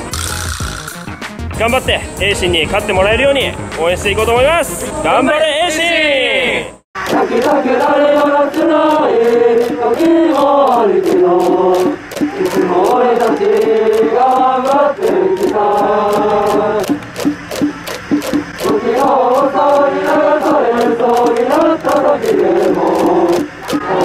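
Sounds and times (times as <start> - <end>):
steady drum beat: 0.0 - 4.8, 7.0 - 24.0
boys singing in unison: 7.0 - 24.0.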